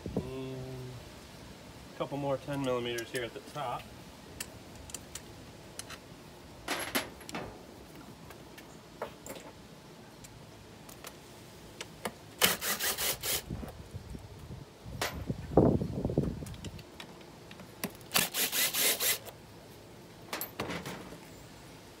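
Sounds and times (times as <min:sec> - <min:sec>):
cordless drill bursts: 0:12.4 - 0:13.5, 0:18.1 - 0:19.3.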